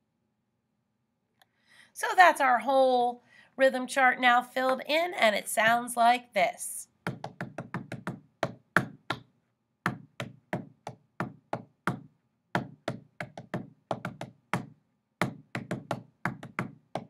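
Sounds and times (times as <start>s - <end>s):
hand tapping rhythm: 7.0s - 17.0s.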